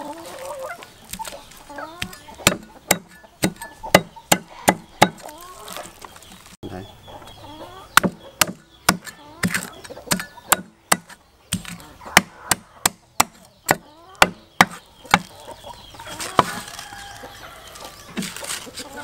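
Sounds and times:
cleaver chopping fish on a block: 2.0s - 5.2s, 8.0s - 15.3s.

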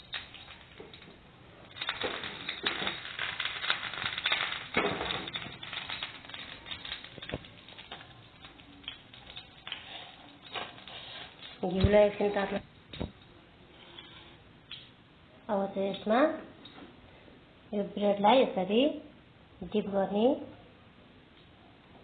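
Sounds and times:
butter sizzling in frying pan: 0.0s - 12.6s.

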